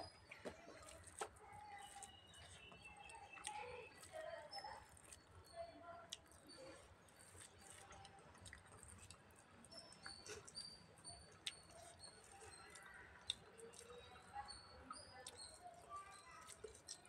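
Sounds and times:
chewing with mouth full: 0:00.0 - 0:17.0
wet mouth clicks: 0:07.3 - 0:17.0.

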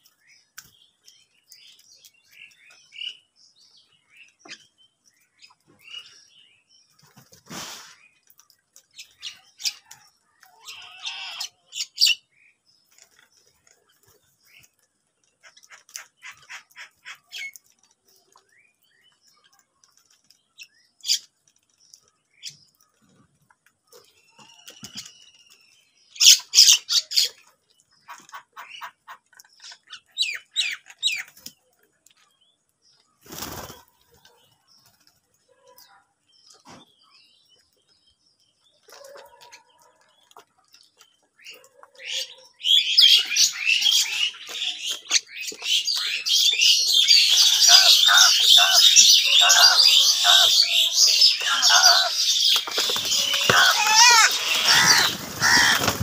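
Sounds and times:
crow wingbeats: 0:47.4 - 0:56.0
crows cawing: 0:47.4 - 0:56.0.

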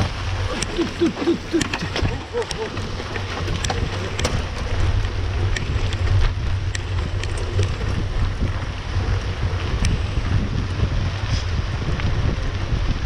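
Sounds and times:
low rumble of bike on dirt road: 0:00.0 - 0:13.0
wind buffeting microphone: 0:00.0 - 0:13.0
sharp clicks: 0:00.5 - 0:04.4.

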